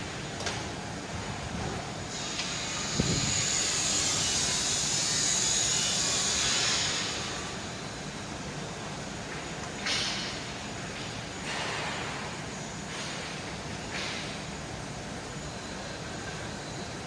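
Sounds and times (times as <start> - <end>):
molten metal bath hissing: 2.1 - 8.1.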